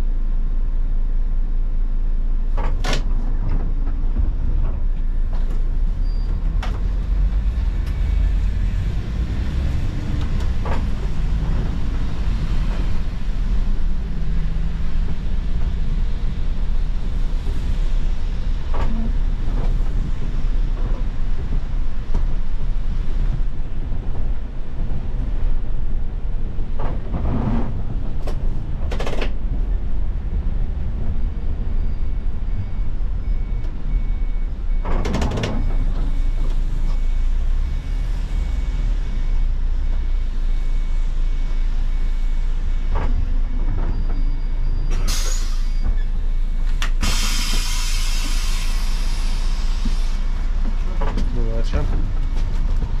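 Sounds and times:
bus engine and road rumble: 0.0s - 53.0s
compressed air hiss: 47.0s - 50.2s.

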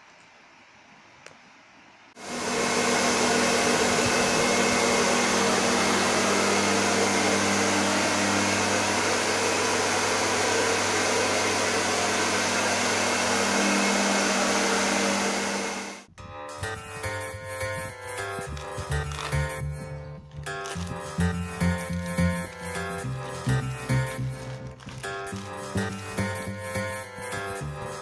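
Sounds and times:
hair dryer running: 2.2s - 16.1s.

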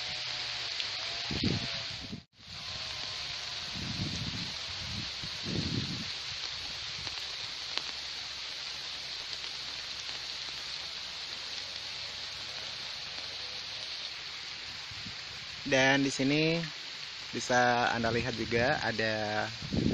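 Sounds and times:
steady rainfall: 0.0s - 19.9s.

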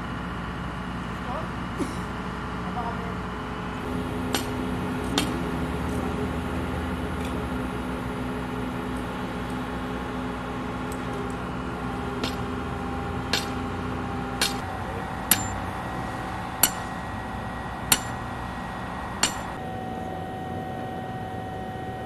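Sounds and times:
steady hum: 2.8s - 22.0s
sledgehammer strikes ringing: 3.9s - 5.6s, 12.0s - 19.7s.

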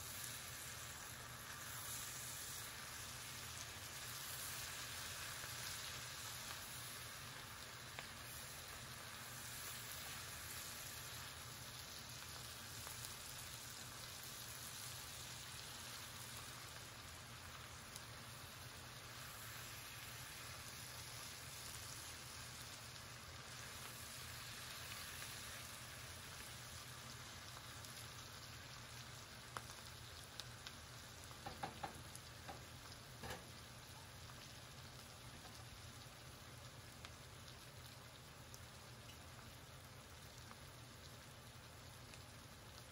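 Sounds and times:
vegetables sizzling in a skillet: 0.0s - 42.9s
spatula knocking: 31.4s - 32.6s.

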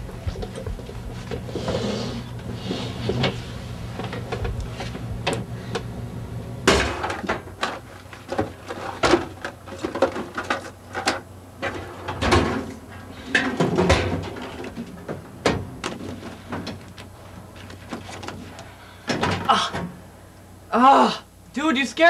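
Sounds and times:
objects clattering in drawer: 6.7s - 16.9s.

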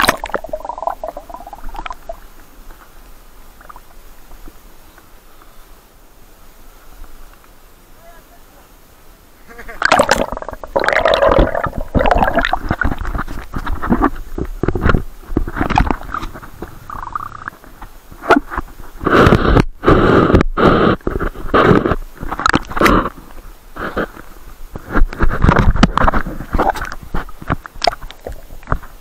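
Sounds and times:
water splashing and sloshing: 0.0s - 2.9s, 9.8s - 19.0s, 24.8s - 29.0s.

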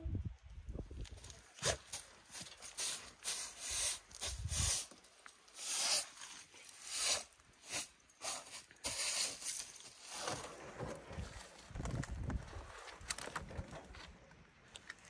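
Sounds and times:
broom bristles swishing on wood: 1.6s - 10.4s.

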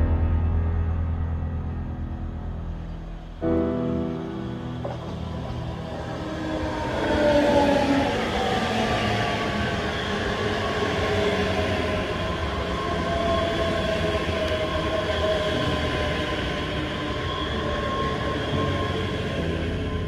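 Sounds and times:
wheel-on-rail rumble: 4.4s - 20.0s
train motor whine: 4.7s - 20.0s.

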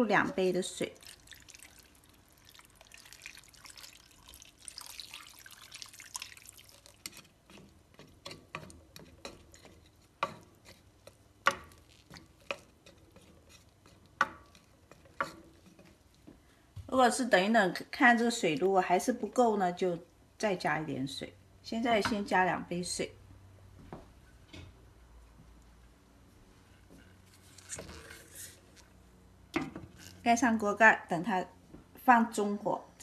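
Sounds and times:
wooden spatula stirring: 0.0s - 19.2s, 26.8s - 29.0s
water pouring into pan: 0.8s - 7.3s.

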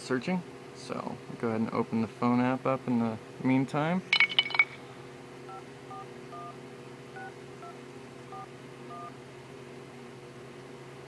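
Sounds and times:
phone keypad touch tones: 5.5s - 6.6s, 7.2s - 9.1s.

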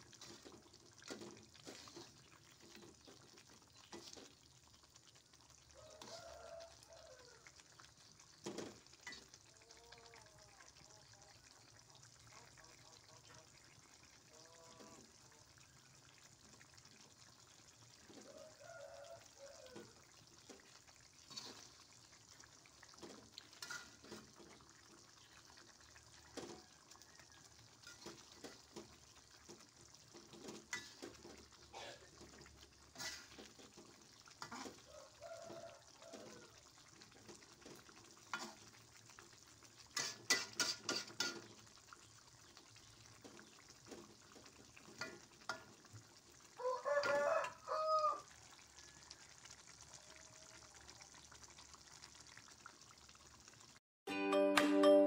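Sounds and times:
spatula scraping sauce in wok: 0.0s - 2.9s, 21.2s - 21.8s, 32.8s - 33.8s, 34.4s - 34.8s
faint simmering sizzle: 0.0s - 53.8s.

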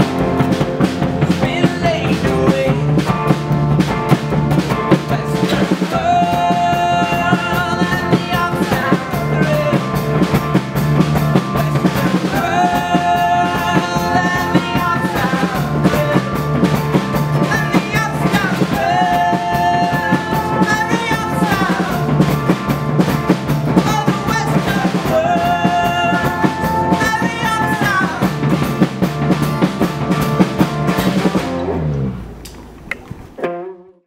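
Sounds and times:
acoustic guitar strummed hard: 0.0s - 32.2s
man singing: 1.2s - 3.2s, 4.7s - 10.6s, 11.3s - 22.6s, 23.7s - 28.6s.

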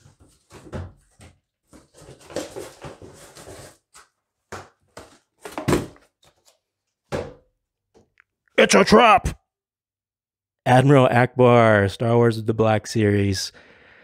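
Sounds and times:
cardboard box rustling and scraping: 0.0s - 4.0s.

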